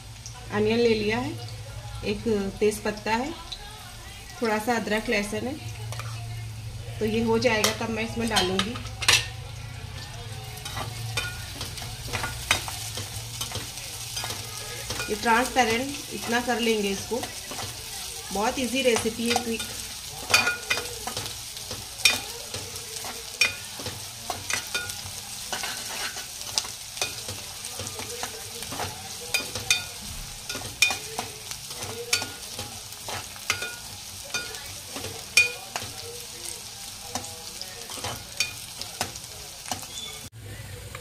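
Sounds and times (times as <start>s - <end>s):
onions sizzling in oil: 0.0s - 41.0s
metal ladle scraping a pot: 24.5s - 27.4s.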